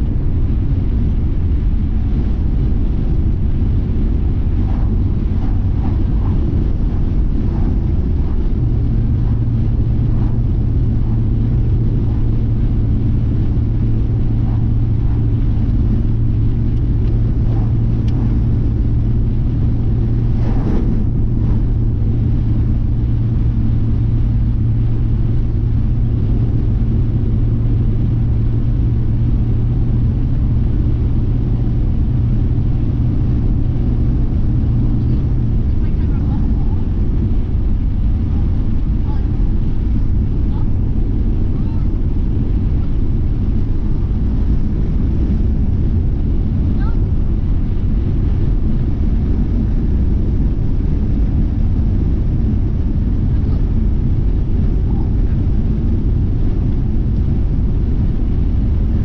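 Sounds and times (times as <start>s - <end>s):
low hum: 0.0s - 59.0s
tyres and engine rumble: 0.0s - 59.0s.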